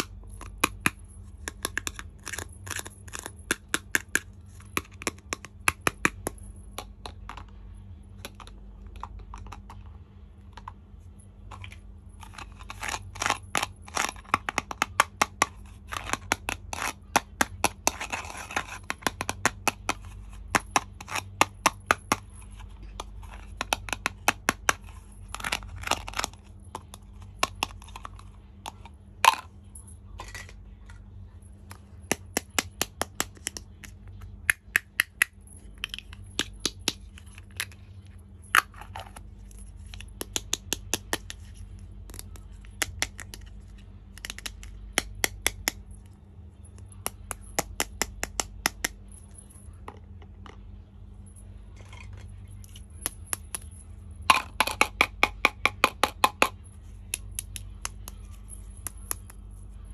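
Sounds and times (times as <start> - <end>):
plastic toy pieces clicking: 44.1 - 45.8.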